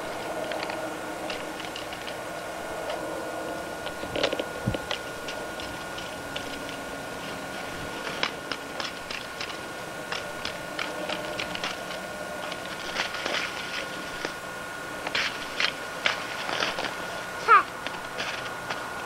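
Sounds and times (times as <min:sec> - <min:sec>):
faint steady whine: 0:00.0 - 0:19.0
light clicks and crackles: 0:00.4 - 0:02.2, 0:08.0 - 0:14.4.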